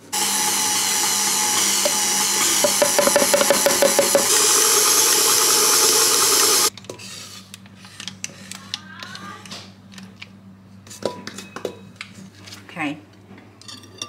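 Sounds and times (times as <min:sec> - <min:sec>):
stand mixer running: 0:00.0 - 0:06.7.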